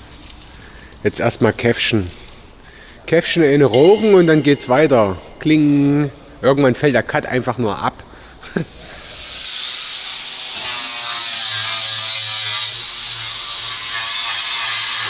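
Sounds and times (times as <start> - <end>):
rotary power tool sanding metal: 9.0 - 15.0.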